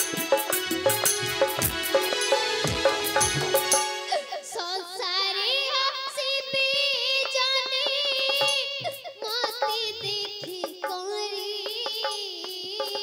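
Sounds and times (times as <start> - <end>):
light percussion strokes: 0.0 - 4.6.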